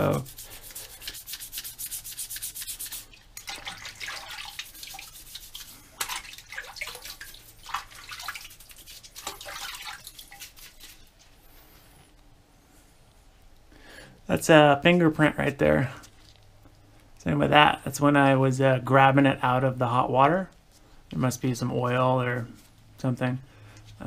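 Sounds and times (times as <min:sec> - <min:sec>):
toothbrush scrubbing metal part: 0:00.0 - 0:03.0, 0:04.5 - 0:06.0.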